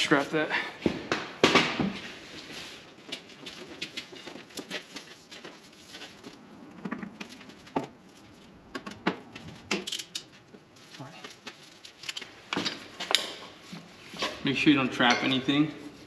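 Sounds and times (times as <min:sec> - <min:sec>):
ratchet strap clicking and rattling: 0:09.4 - 0:10.4, 0:11.6 - 0:13.4.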